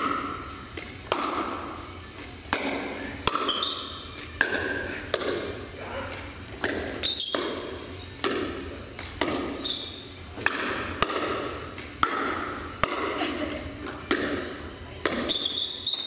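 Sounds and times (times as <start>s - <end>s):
paddles striking ball: 0.0s - 1.7s, 2.4s - 3.6s, 4.4s - 5.5s, 6.1s - 9.6s, 10.4s - 15.4s
ball bouncing on gym floor: 0.0s - 5.5s, 6.5s - 16.0s.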